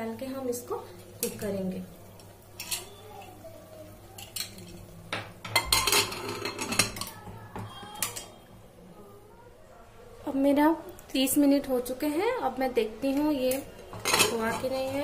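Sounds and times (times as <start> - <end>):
metal lid clanking on pot: 5.4 - 7.1, 13.9 - 14.7.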